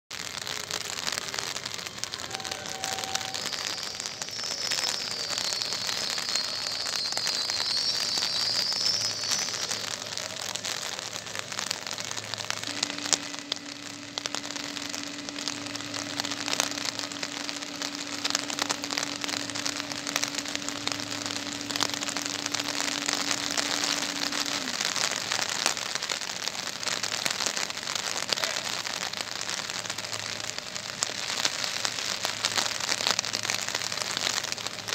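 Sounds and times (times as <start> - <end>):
heavy rain: 0.1 - 34.9
raindrops ticking: 0.1 - 34.9
high wavering squeal: 1.9 - 25.8
steady low hum: 11.5 - 25.9.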